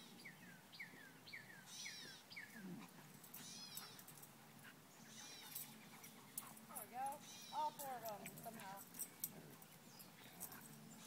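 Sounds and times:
dogs squeaking: 0:03.3 - 0:04.2, 0:05.0 - 0:06.6.

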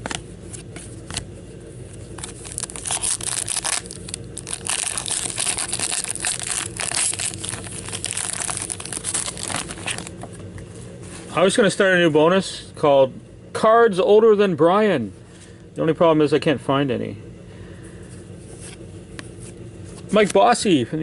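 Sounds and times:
card pack wrapper crinkling and tearing: 0:02.1 - 0:10.2.

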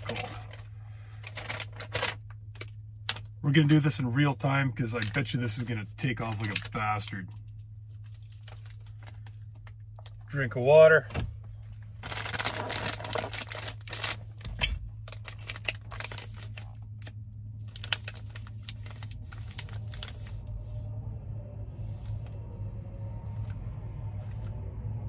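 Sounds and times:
plastic packaging crinkling: 0:00.0 - 0:03.3, 0:06.2 - 0:06.9, 0:08.0 - 0:10.2, 0:12.0 - 0:20.6
steady low hum: 0:00.0 - 0:25.0.

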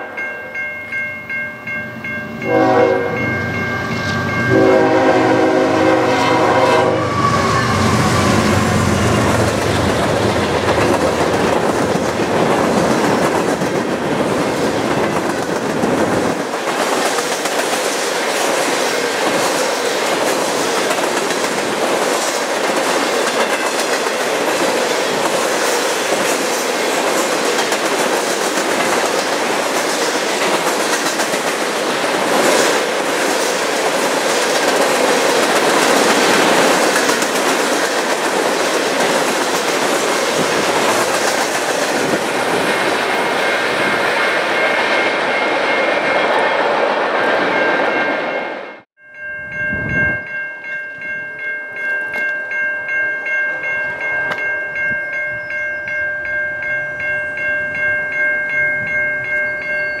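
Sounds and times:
level crossing bell ringing: 0:00.0 - 0:05.6, 0:49.0 - 1:00.0
freight train wheels rumbling: 0:01.9 - 0:48.8.

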